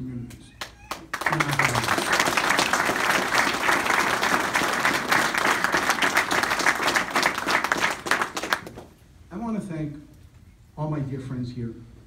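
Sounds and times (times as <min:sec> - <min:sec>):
crowd applauding: 0:00.6 - 0:08.9.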